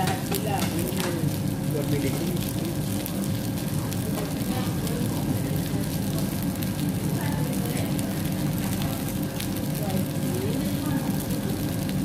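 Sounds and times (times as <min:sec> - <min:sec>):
food sizzling and crackling on grill: 0:00.0 - 0:12.0.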